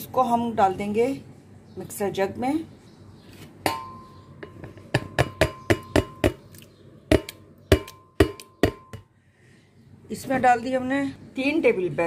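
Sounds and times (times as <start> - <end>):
glass jar ringing: 3.7 - 6.4.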